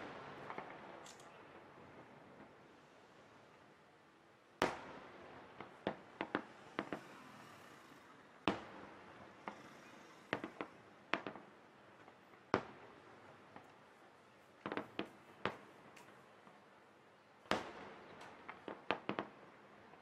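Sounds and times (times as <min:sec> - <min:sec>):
firework pops and crackles: 0:00.0 - 0:01.4, 0:04.6 - 0:16.6, 0:17.4 - 0:20.0
firework shells bursting: 0:05.6 - 0:12.2, 0:14.6 - 0:16.2.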